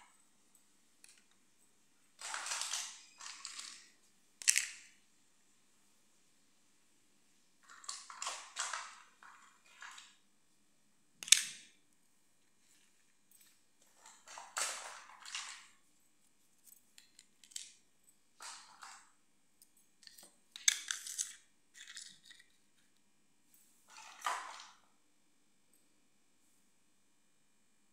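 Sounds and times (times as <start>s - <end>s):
plastic toy pieces clattering: 2.2s - 5.0s, 7.6s - 10.2s, 13.9s - 15.8s, 17.0s - 17.8s, 20.0s - 22.9s.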